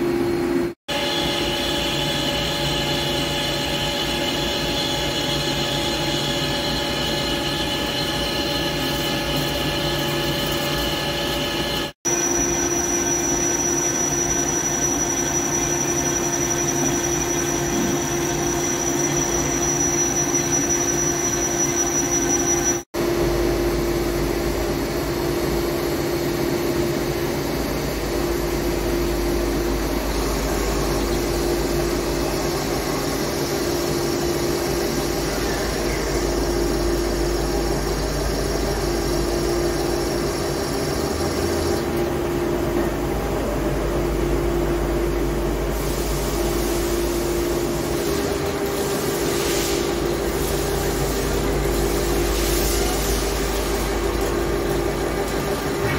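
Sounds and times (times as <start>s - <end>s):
high machine whine: 0.0s - 55.9s
lathe machine hum: 0.0s - 55.9s.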